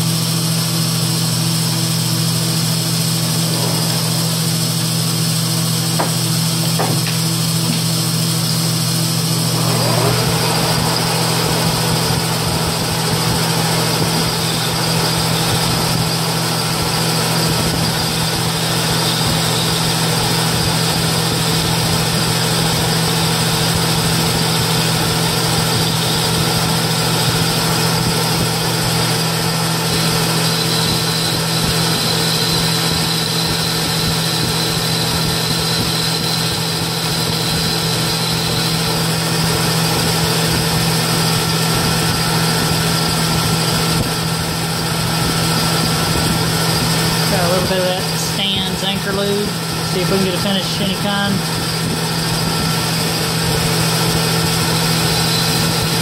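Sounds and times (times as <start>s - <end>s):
metal lathe humming: 0.0s - 56.0s
faint high whine: 1.9s - 21.8s.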